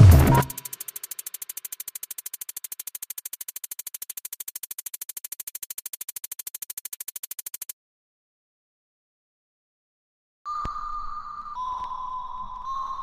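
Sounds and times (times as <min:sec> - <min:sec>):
rapid electronic clicks: 0:00.0 - 0:07.8.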